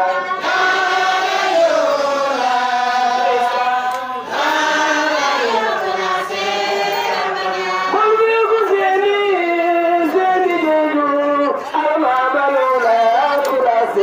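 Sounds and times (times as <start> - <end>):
group chanting in held notes: 0.0 - 8.0.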